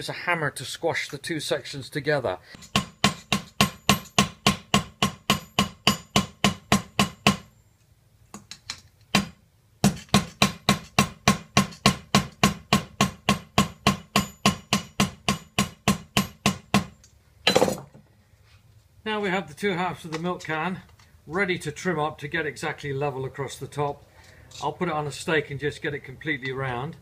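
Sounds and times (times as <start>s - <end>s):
hammer striking metal: 2.6s - 7.5s, 9.2s - 17.8s.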